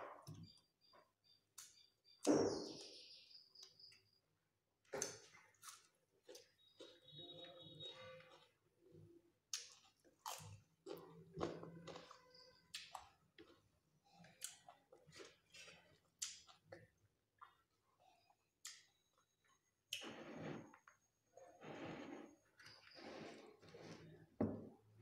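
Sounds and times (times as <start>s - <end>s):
chewing and crunching: 9.4s - 19.6s.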